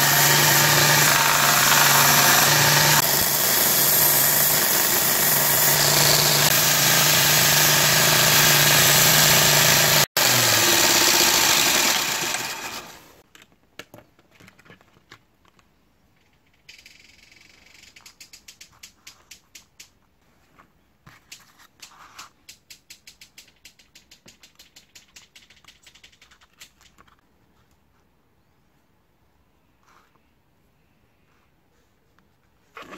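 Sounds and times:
belt grinder sanding wood: 0:00.0 - 0:13.2.

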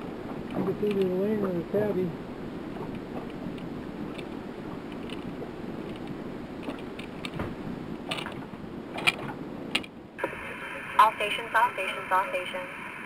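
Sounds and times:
radio hiss: 0:10.2 - 0:13.0.

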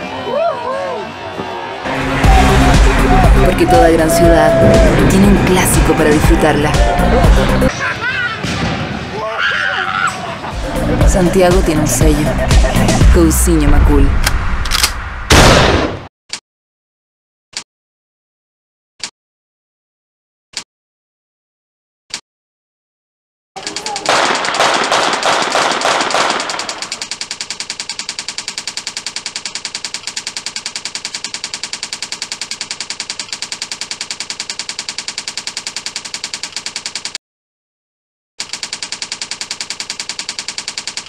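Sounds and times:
typewriter key clicks: 0:23.6 - 0:24.6.

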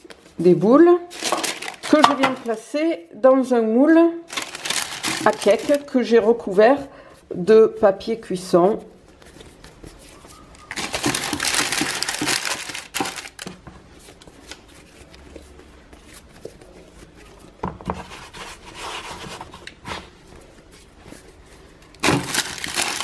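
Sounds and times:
parchment paper rustling: 0:00.0 - 0:02.7, 0:04.3 - 0:23.0.

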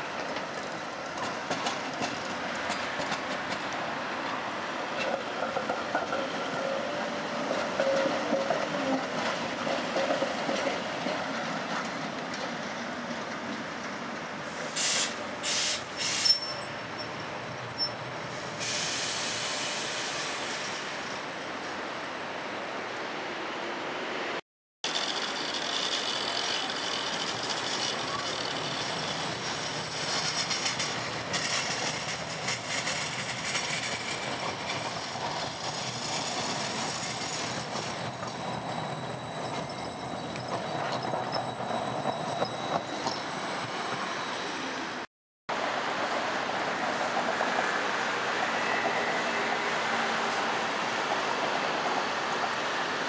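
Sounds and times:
tram rolling on rails: 0:00.0 - 0:53.0
wheel squeal: 0:14.8 - 0:20.8, 0:24.9 - 0:35.0, 0:35.7 - 0:45.0.

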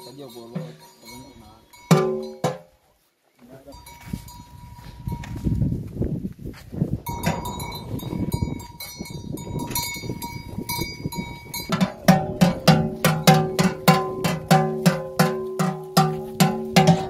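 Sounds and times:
large neck bell clanking: 0:00.0 - 0:02.7, 0:07.1 - 0:17.0
cattle bells clanking: 0:00.0 - 0:02.8, 0:03.7 - 0:05.4, 0:07.0 - 0:17.0.

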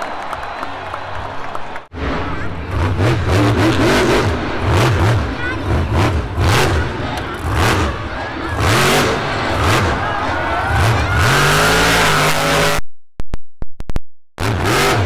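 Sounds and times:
truck engine revving hard: 0:01.9 - 0:12.8, 0:14.4 - 0:15.0.

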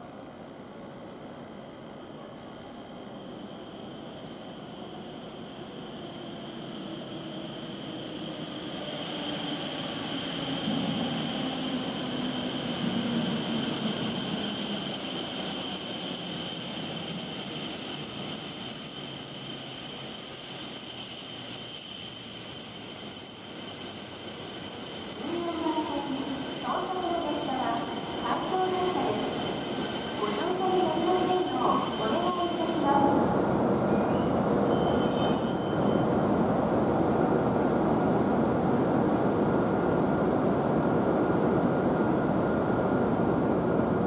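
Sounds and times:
train running past: 0:00.0 - 0:44.0
high-pitched whine: 0:02.4 - 0:36.5.

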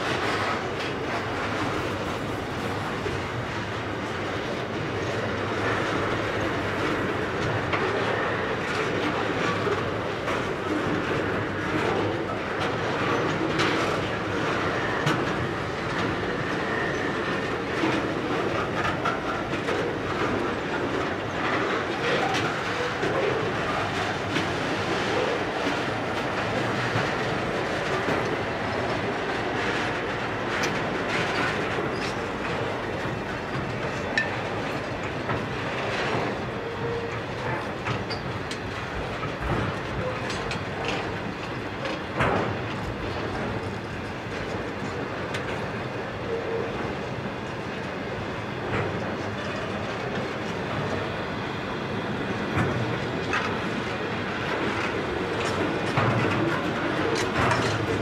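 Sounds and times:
freight train rumble: 0:00.0 - 0:58.0
wheels clicking and knocking on rail: 0:00.0 - 0:58.0
wheels clicking over rail joints: 0:52.5 - 0:58.0.

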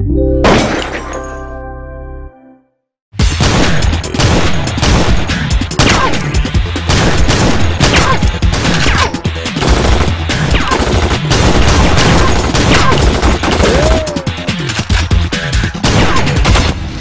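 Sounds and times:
background music: 0:00.0 - 0:17.0
gunfire: 0:03.2 - 0:14.1, 0:15.8 - 0:16.8.

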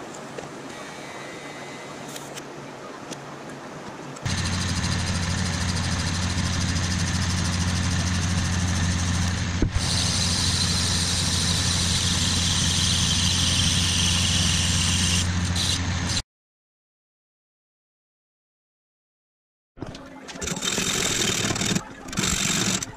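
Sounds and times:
lathe running with low hum: 0:04.3 - 0:16.2.

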